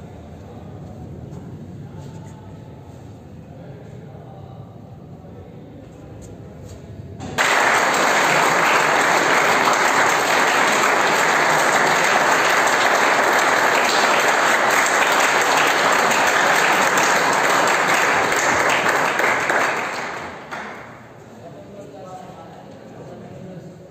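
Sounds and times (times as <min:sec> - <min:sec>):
audience applauding: 0:07.4 - 0:21.2.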